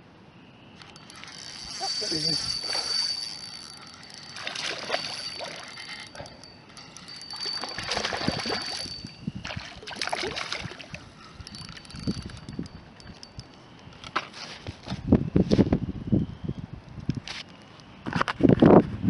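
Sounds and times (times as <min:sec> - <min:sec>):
fishing reel clicking: 0:00.8 - 0:14.1.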